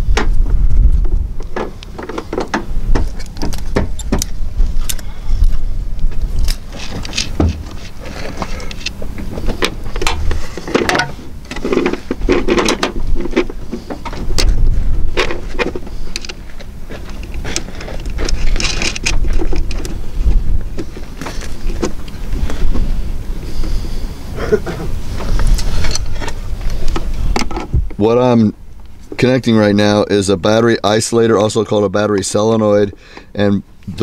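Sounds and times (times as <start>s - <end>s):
low rumble: 0.0s - 29.1s
battery cables clicking and clinking: 6.0s - 20.0s.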